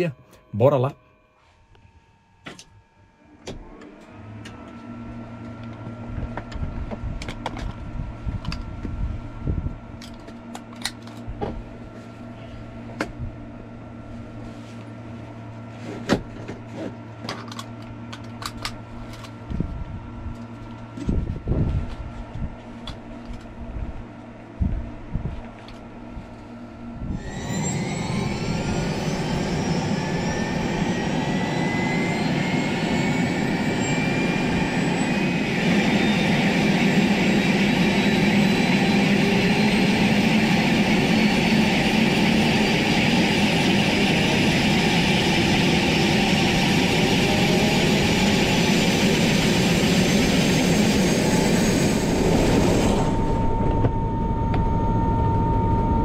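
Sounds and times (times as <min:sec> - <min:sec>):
electrical whine: 0:00.0 - 0:56.0
low hum: 0:00.0 - 0:56.0
helicopter turbine spooling up: 0:25.9 - 0:56.0.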